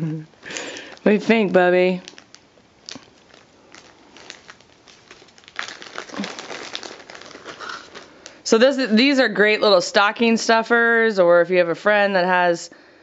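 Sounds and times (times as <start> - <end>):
paper and plastic bag crinkling: 0.4 - 8.5.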